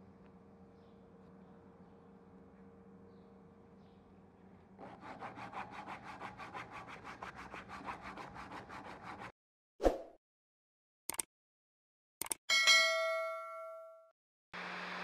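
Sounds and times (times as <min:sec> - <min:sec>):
sanding strip rasping on wood: 0:04.8 - 0:09.3.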